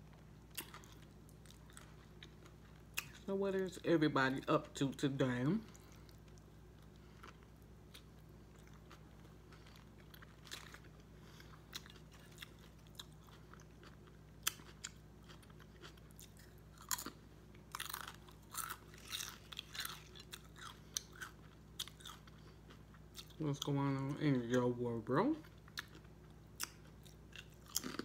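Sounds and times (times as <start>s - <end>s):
chewing a sandwich: 0.0s - 3.3s, 5.6s - 24.7s, 25.3s - 28.0s
crunching potato chips: 5.4s - 24.6s, 25.3s - 28.0s.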